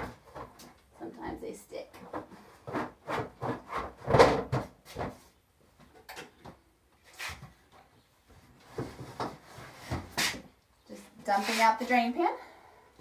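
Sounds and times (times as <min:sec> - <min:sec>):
plastic trays knocking and scraping: 0:02.0 - 0:06.6.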